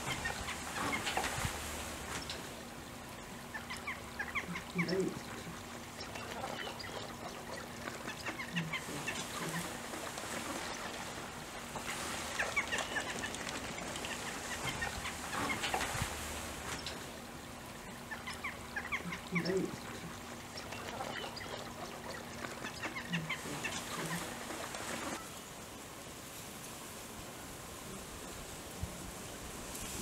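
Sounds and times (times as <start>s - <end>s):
waterfowl calling: 0.0s - 25.3s
deeper bird calls: 3.4s - 11.1s.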